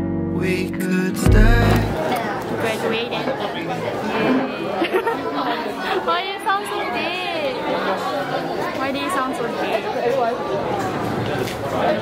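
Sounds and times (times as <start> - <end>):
guitar chords music: 0.0 - 2.1
chatter of voices: 1.4 - 12.0.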